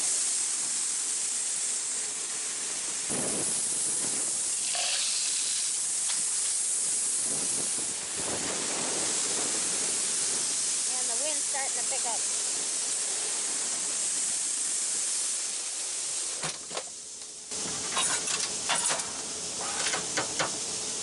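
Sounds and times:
corn pouring into a grated pit: 0.1s - 11.4s.

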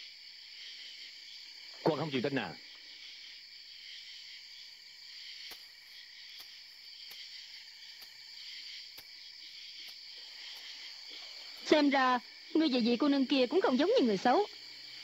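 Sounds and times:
crickets chirping: 0.0s - 15.0s
faint ticks: 5.4s - 5.7s, 6.3s - 7.3s, 7.9s - 8.2s, 8.8s - 9.2s, 9.8s - 11.9s.

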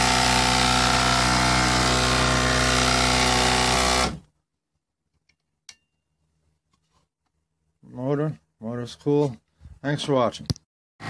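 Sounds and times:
electric motor humming and whirring: 0.0s - 4.2s.

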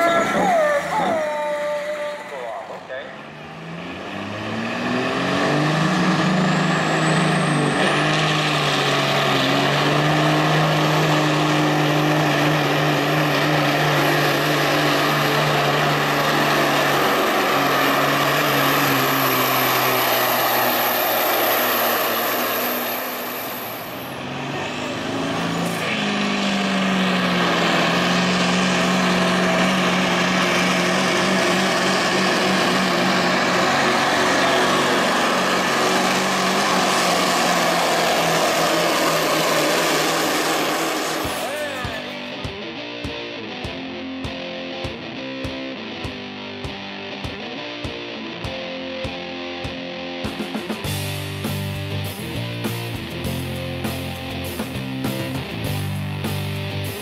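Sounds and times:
second diesel engine under load: 0.0s - 42.4s
diesel truck engine at full throttle: 0.0s - 57.0s
high engine whine: 0.0s - 57.0s.

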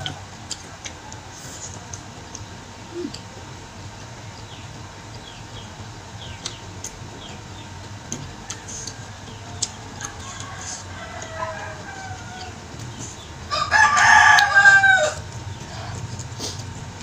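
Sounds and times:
wet chewing clicks: 0.0s - 3.3s, 4.2s - 13.3s
low steady hum: 0.0s - 17.0s.

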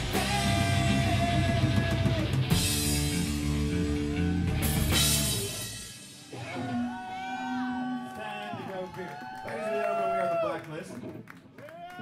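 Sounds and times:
live rock band playing: 0.0s - 8.0s.

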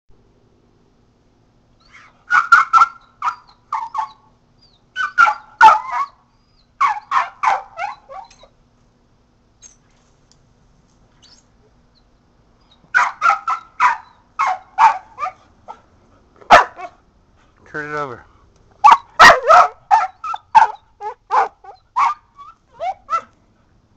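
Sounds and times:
dog barking: 1.9s - 4.2s, 5.0s - 6.2s, 6.8s - 8.4s, 12.9s - 15.8s, 16.5s - 17.0s, 18.8s - 23.3s.

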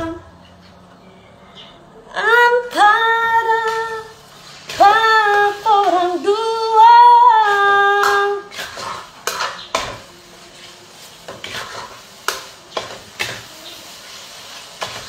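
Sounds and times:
utensils clinking on cookware: 7.4s - 10.1s, 11.2s - 15.0s.

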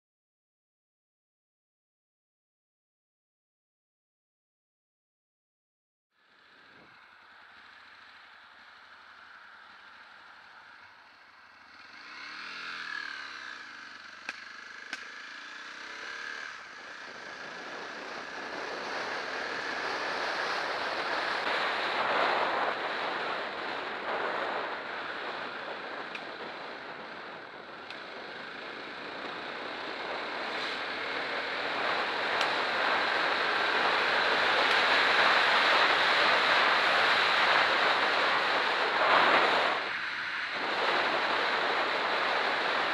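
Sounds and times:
motorcycle engine revving: 6.2s - 42.9s
wind rush on microphone: 17.0s - 42.9s.

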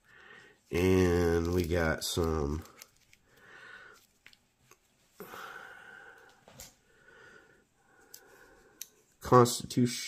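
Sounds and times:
person breathing softly: 0.0s - 0.7s, 3.1s - 4.2s, 5.1s - 9.2s.

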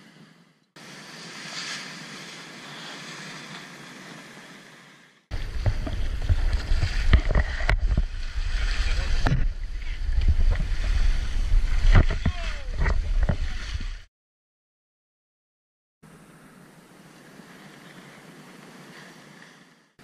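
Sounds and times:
sea: 0.0s - 14.1s, 16.0s - 20.0s
wind: 0.0s - 14.1s, 16.0s - 20.0s
water splashing along a hull: 0.8s - 14.1s, 16.5s - 20.0s
wind buffeting microphone: 5.3s - 14.1s.

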